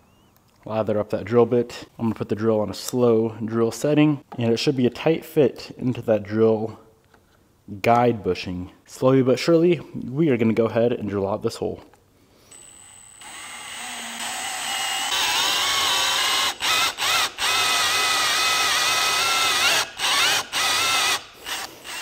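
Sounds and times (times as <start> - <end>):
cordless drill whining: 12.4 - 22.0.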